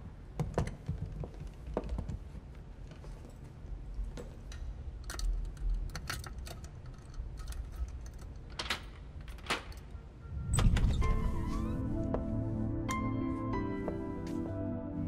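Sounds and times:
key scraping as it turns: 0:05.0 - 0:09.8
low rumble: 0:10.1 - 0:12.9.

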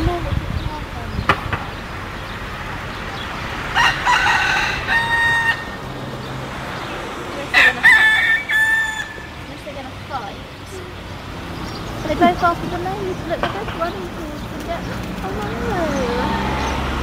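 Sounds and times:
rooster crowing: 0:03.5 - 0:06.2, 0:07.4 - 0:09.5.

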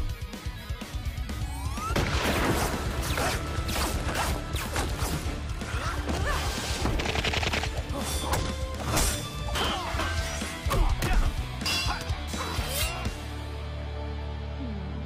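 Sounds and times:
background music with bass line: 0:00.0 - 0:15.0.

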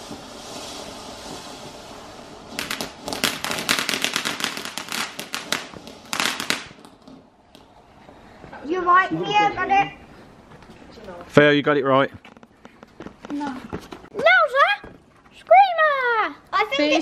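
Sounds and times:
crackling firework bangs: 0:00.0 - 0:08.2
firework fountain hissing: 0:00.0 - 0:08.6.

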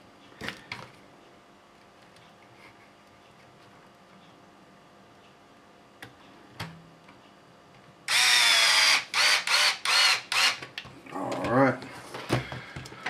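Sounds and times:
electric screwdriver motor whining: 0:08.1 - 0:10.6.

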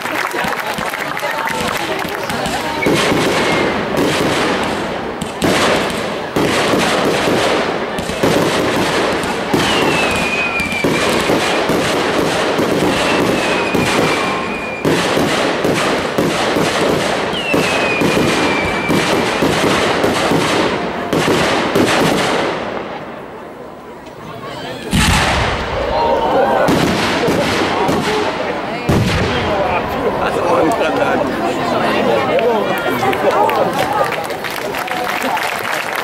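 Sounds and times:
fireworks banging and crackling: 0:00.0 - 0:24.2, 0:24.8 - 0:36.0
firework whistles: 0:02.7 - 0:04.2, 0:09.6 - 0:12.0, 0:12.6 - 0:15.3, 0:17.2 - 0:19.7.

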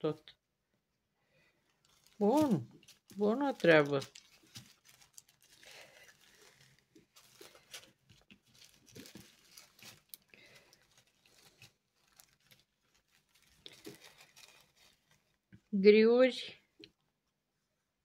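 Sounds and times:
plastic bags crinkling: 0:01.6 - 0:15.5.

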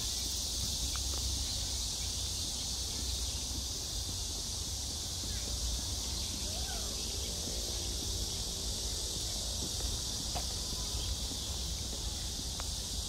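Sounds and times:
high-pitched insect chorus: 0:00.0 - 0:13.0
faint voices: 0:04.0 - 0:13.0.

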